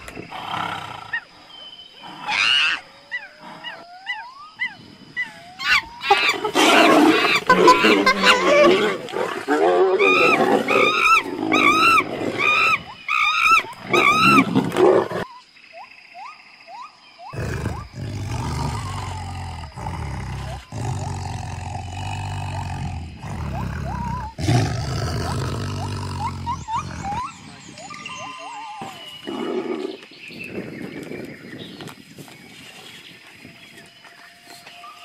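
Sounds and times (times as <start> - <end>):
monkeys shrieking: 2.2 - 9.0, 9.9 - 14.5
tiger growling: 17.3 - 27.4.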